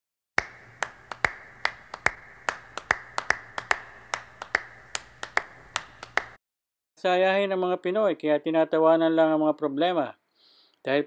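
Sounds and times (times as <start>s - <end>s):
faint steady hum: 0.4s - 6.4s
people clapping in a hall: 0.4s - 6.4s.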